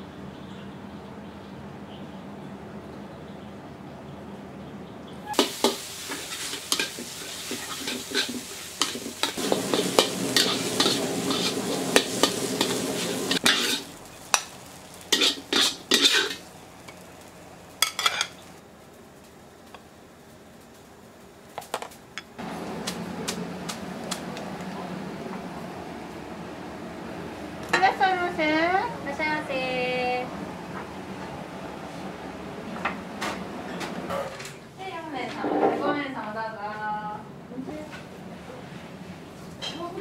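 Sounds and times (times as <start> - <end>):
metal utensil scraping a wok: 5.2 - 16.5, 17.8 - 18.4
water boiling in a pot: 5.2 - 31.0
food sizzling: 5.2 - 34.0.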